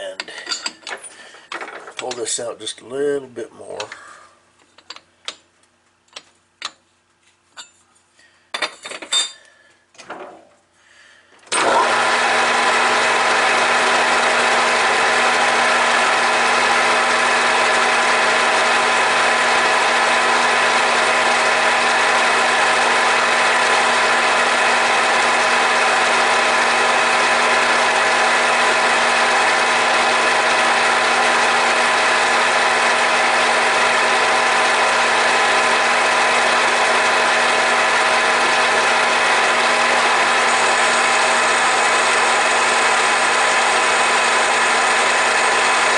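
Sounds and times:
lathe running with whine: 11.6s - 45.9s
cutter cutting brass rod: 20.0s - 45.9s.

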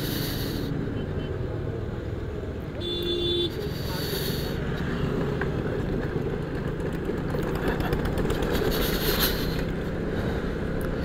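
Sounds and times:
road noise: 0.0s - 11.0s
scooter engine hum: 2.8s - 11.0s.

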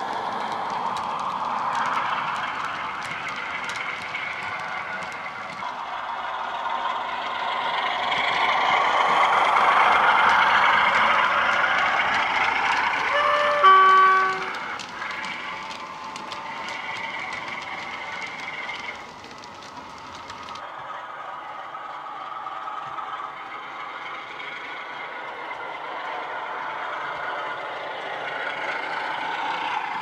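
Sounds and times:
diesel locomotive engine running: 0.0s - 30.0s
model wheels clicking on track: 0.0s - 30.0s
two-tone train horn: 12.8s - 14.8s.

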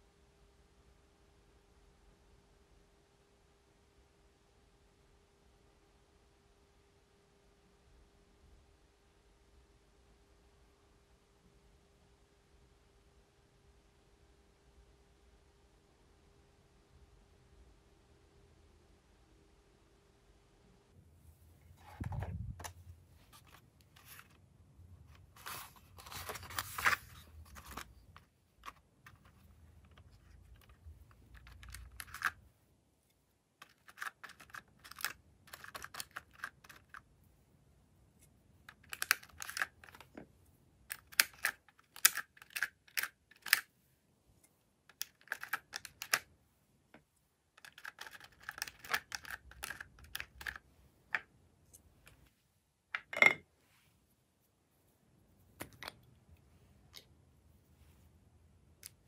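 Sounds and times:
plastic handling noise: 21.6s - 32.5s
plastic spatula clicking and scraping: 25.1s - 32.5s, 33.6s - 37.1s, 38.2s - 43.7s, 44.9s - 46.3s, 47.5s - 52.2s.

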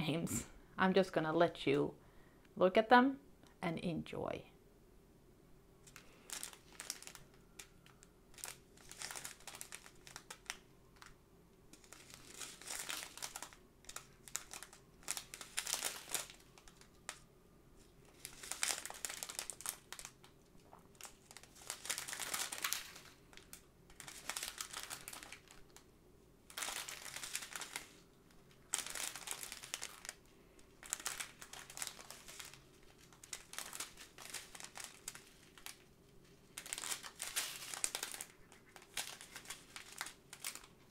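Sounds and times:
plastic bags crinkling: 5.8s - 40.9s.

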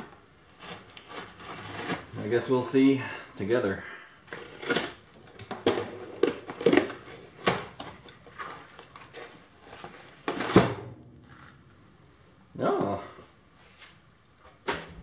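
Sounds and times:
cardboard crinkling and scraping: 0.0s - 2.8s, 4.3s - 10.6s
plastic mailer tearing: 0.4s - 2.4s, 4.3s - 5.2s, 6.0s - 9.4s.

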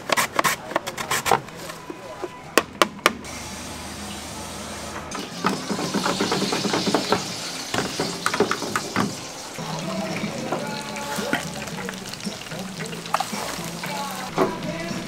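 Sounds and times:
cooking hiss: 3.3s - 15.0s.

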